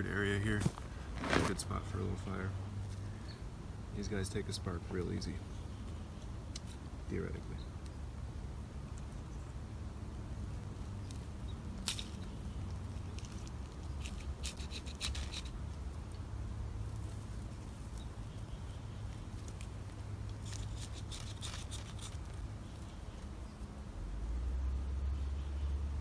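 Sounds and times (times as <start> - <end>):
low steady rumble: 0.0 - 26.0
ferro rod scraping: 13.2 - 15.6.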